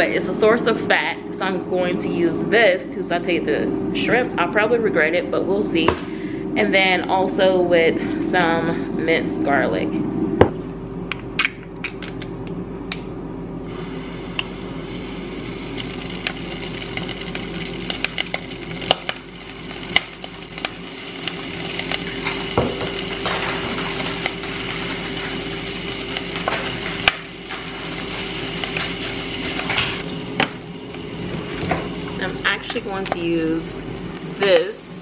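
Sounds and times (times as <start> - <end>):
steady low hum: 0.0 - 35.0
sauce and garlic sizzling in pan: 13.7 - 35.0.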